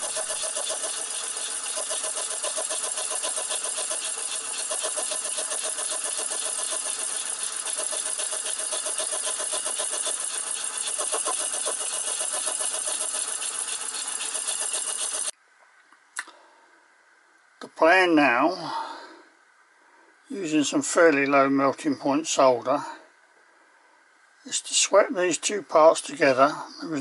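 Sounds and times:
saw grinding through metal: 0.0s - 15.3s.

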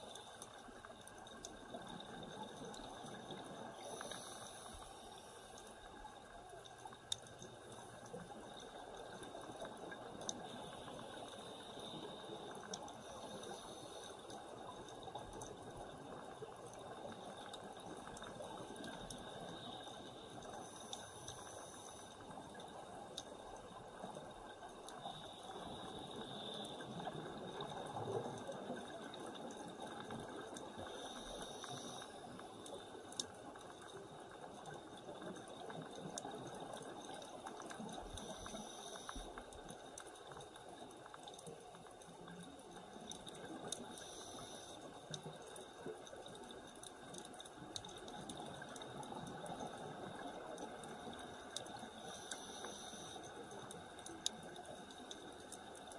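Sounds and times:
underwater crackling hiss: 0.0s - 55.9s
scuba regulator breathing: 3.6s - 5.7s, 10.6s - 14.4s, 30.8s - 33.0s, 43.8s - 45.2s, 51.9s - 53.5s.

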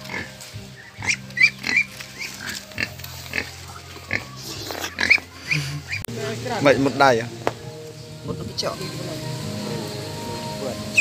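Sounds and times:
farm animal calls: 0.0s - 6.1s.

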